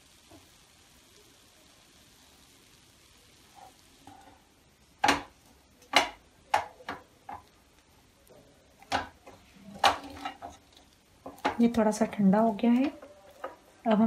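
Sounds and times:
wooden spatula knocking on pan: 5.0s - 7.5s, 8.8s - 10.6s, 11.2s - 11.8s.

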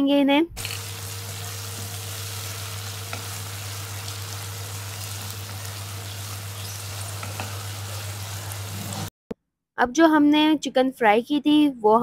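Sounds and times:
vegetables sizzling in oil: 0.6s - 9.1s
spatula tapping pot: 7.2s - 7.6s.

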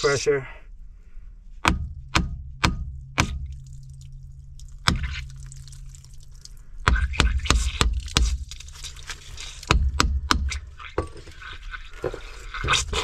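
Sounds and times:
hammer knocking on cast iron: 1.6s - 3.5s, 9.7s - 11.2s.

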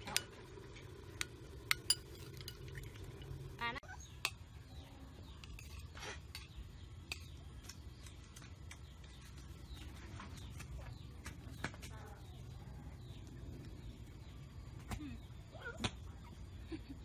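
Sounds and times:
steady low hum: 0.0s - 17.0s
spoon scraping a plate: 1.2s - 3.0s, 5.2s - 7.4s.

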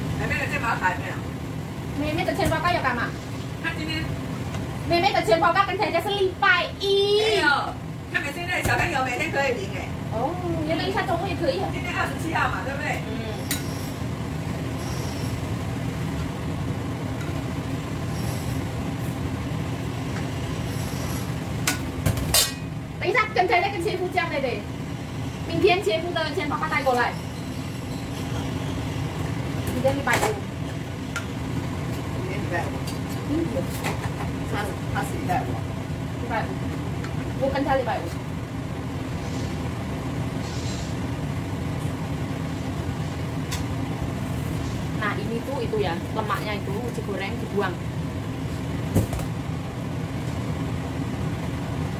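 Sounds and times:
stove low rumble: 0.0s - 51.9s.

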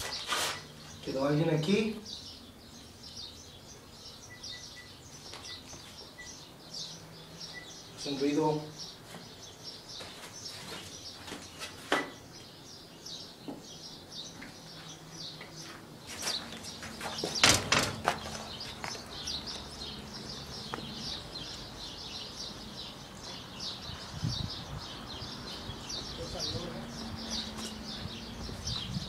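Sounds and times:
birds chirping: 0.0s - 29.0s
sharp knocks: 17.3s - 18.2s.

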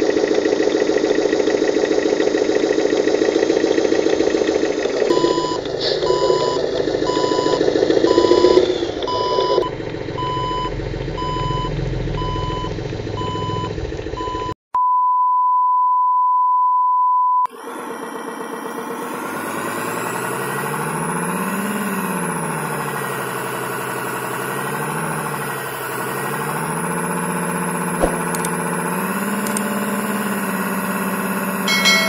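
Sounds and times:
toy truck engine running: 0.0s - 14.4s, 17.5s - 32.0s
electronic reversing beeps: 5.1s - 14.5s.

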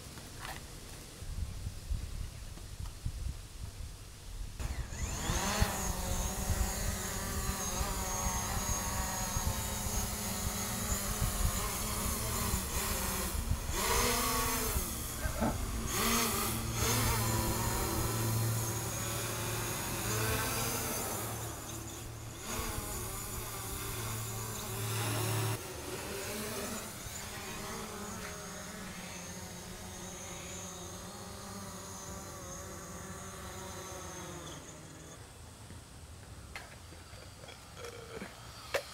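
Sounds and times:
drone propellers whining: 4.6s - 35.6s.

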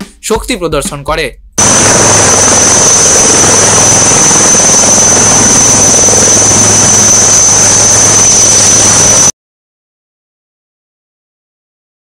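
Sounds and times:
helicopter engines and rotor: 1.6s - 9.3s.

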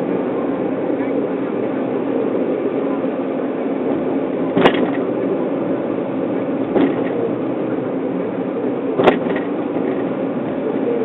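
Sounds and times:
car road and engine noise: 0.0s - 11.0s
short knocks: 6.7s - 7.2s, 9.0s - 10.1s.

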